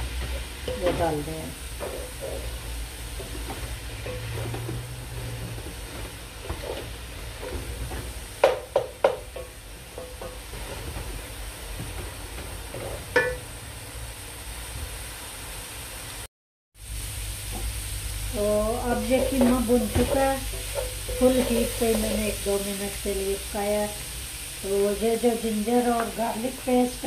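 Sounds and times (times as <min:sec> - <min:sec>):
meat sizzling in a pan: 0:00.0 - 0:27.0
wooden spoon knocking on pan: 0:01.8 - 0:10.5, 0:12.8 - 0:13.4, 0:18.9 - 0:22.3.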